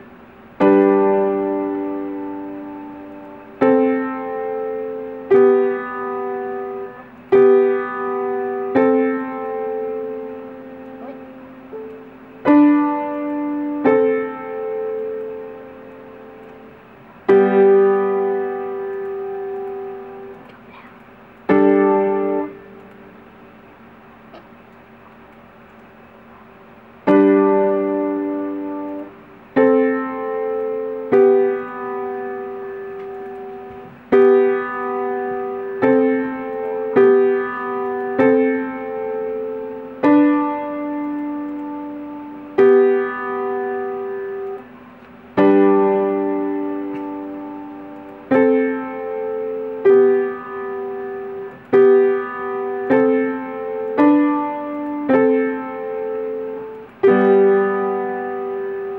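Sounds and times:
upright piano notes and chords: 0.0 - 58.9.

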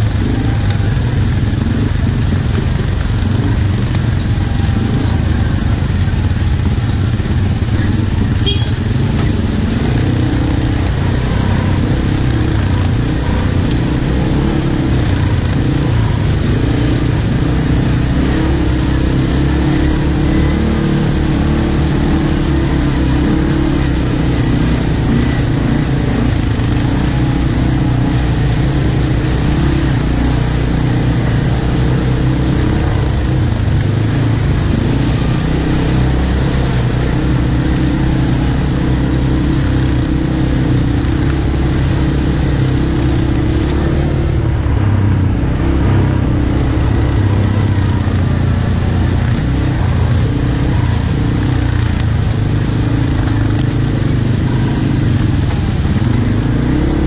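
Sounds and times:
quad bike engine running: 0.0 - 57.0.

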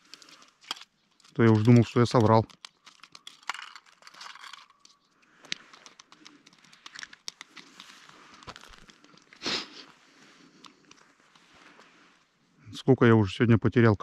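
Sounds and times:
small clicks and rubs: 0.0 - 12.3
crunching on snow and ice: 6.7 - 12.4.

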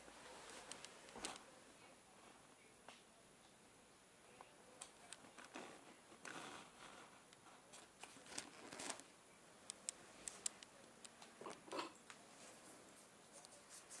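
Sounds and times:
faint scattered clicks: 9.7 - 12.2.

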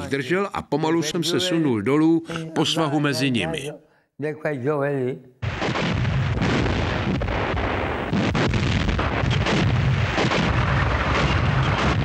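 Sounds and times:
artillery and explosions rumbling: 5.4 - 12.0
rapid gunfire: 8.1 - 12.0.

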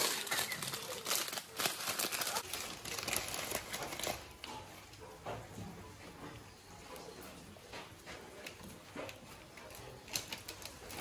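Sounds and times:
plastic packets crinkling: 0.0 - 4.6.

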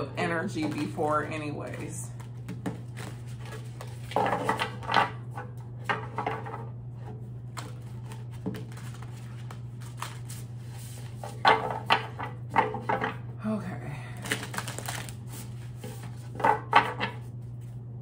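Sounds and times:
steady low hum: 0.0 - 18.0
cards rustling: 1.7 - 4.6, 7.5 - 11.3, 14.2 - 16.2.

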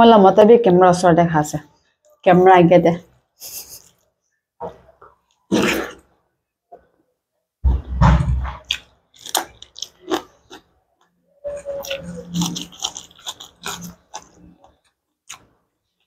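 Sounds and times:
low thump: 7.6 - 8.6
person chewing with lip smacks: 8.6 - 10.7, 11.6 - 15.5.

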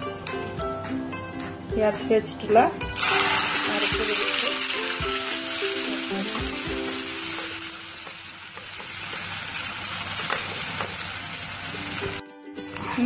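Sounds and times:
faint background music: 0.0 - 8.5, 10.0 - 13.0
paste sizzling in hot oil: 3.0 - 12.2.

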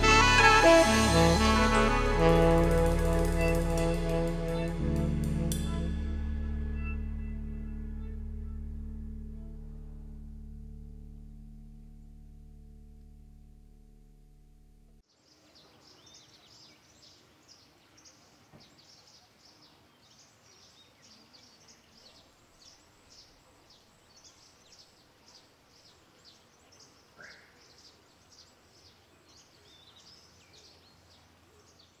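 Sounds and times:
small birds chirping: 15.1 - 32.0.

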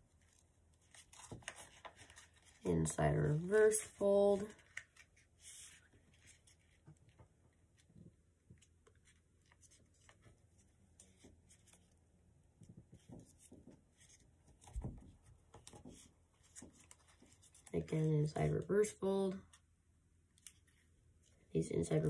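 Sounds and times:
paper rustling and crinkling: 0.0 - 12.0, 12.7 - 17.9.

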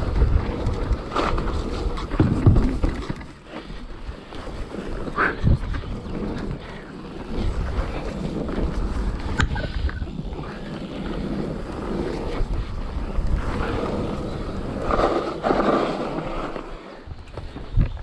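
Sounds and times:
wind buffeting microphone: 0.0 - 3.0, 4.0 - 18.0
mountain bike rolling on dirt: 0.0 - 18.0.

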